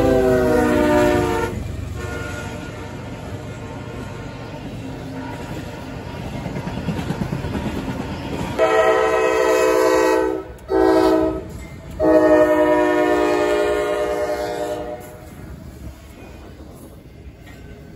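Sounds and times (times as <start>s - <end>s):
locomotive air horn blasts: 0.0s - 4.2s, 8.6s - 15.3s
passing train rumble: 0.0s - 17.9s.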